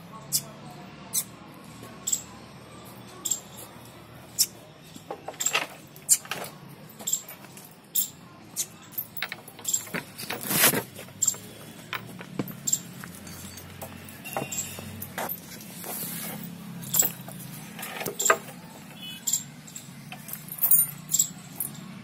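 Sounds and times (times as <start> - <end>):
rustles: 9.7 - 11.9, 12.5 - 18.5
chain jangling: 11.2 - 15.5, 16.3 - 18.5, 19.3 - 21.9.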